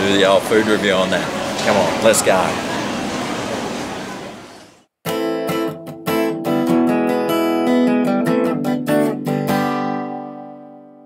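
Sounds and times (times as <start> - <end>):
acoustic guitar strumming chords: 5.0 - 11.0.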